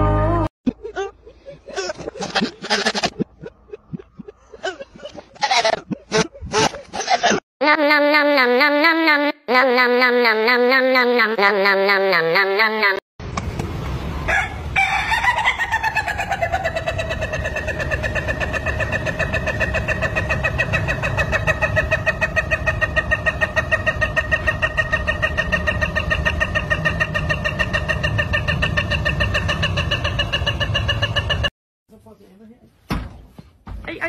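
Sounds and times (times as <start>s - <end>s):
rooster crowing: 14.2s - 18.9s.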